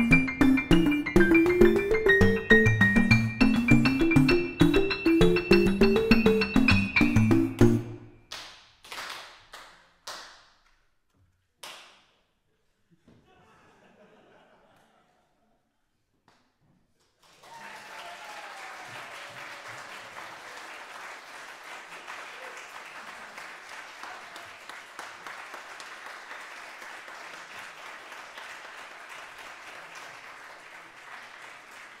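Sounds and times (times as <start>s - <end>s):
audience applauding: 17.2s - 32.0s.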